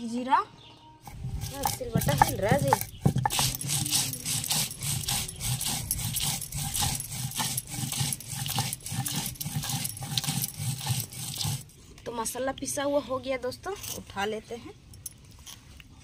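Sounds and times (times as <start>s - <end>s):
stone roller grinding spices: 1.0s - 11.8s.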